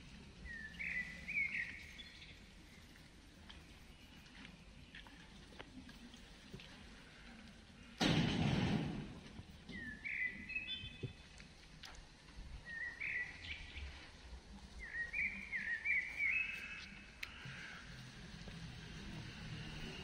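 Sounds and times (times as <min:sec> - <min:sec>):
faint clicks: 0:16.6 - 0:17.8.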